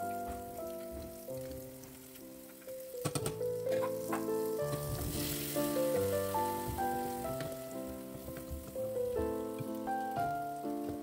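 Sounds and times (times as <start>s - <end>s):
background music with held notes: 0.0s - 11.0s
spice paste sizzling in oil: 3.8s - 8.2s.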